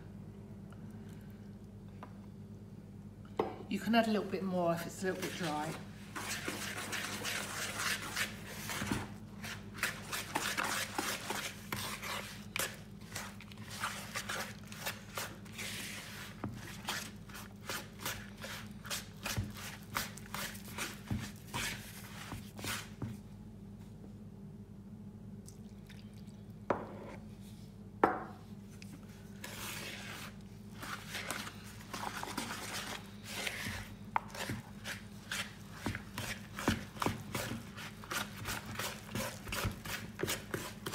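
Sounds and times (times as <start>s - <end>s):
wooden spoon stirring dough: 4.1s - 23.2s, 28.9s - 40.9s.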